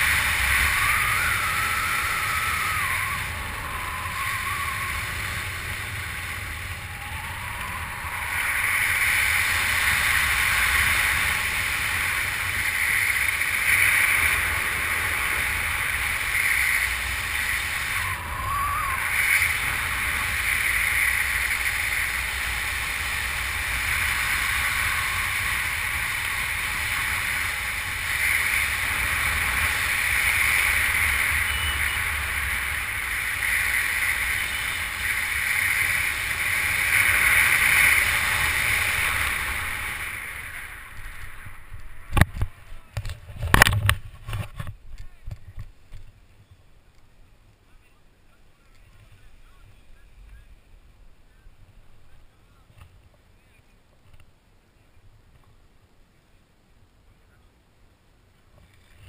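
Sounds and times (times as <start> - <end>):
wind rushing over microphone: 0.0 - 46.1
faint short whistling: 31.4 - 32.1.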